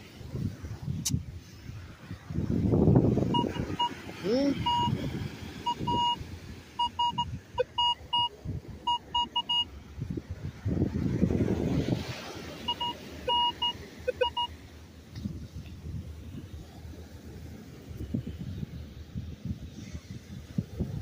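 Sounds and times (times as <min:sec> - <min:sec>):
metal detector beeps: 0:03.3 - 0:04.0, 0:04.6 - 0:05.0, 0:05.7 - 0:06.2, 0:06.8 - 0:08.3, 0:08.9 - 0:09.7, 0:12.7 - 0:14.5.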